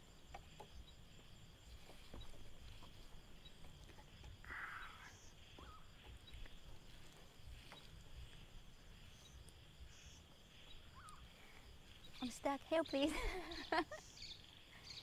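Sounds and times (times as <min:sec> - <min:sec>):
high insect drone: 0:00.0 - 0:15.0
soft rustle: 0:00.4 - 0:13.1.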